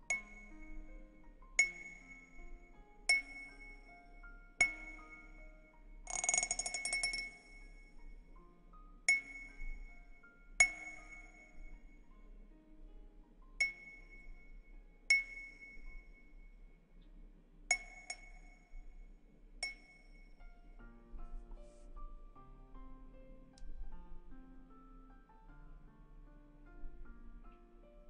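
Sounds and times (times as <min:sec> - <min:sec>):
faint background music: 0:00.0 - 0:28.0
small chime ringing: 0:06.1 - 0:08.2.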